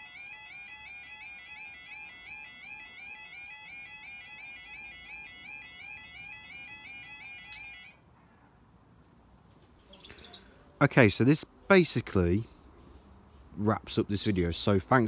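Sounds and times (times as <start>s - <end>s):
electronic warbling alarm: 0.0s - 7.9s.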